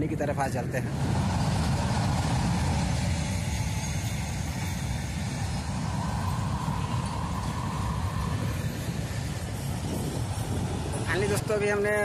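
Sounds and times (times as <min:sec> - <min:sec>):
wind: 0:00.0 - 0:12.0.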